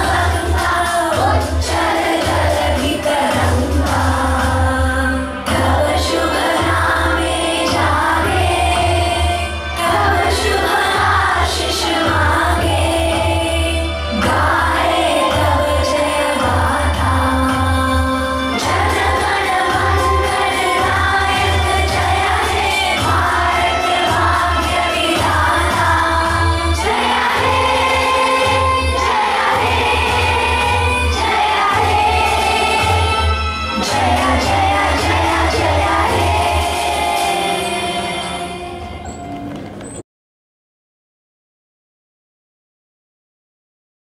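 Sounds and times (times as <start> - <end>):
children singing in unison: 0.0 - 39.2.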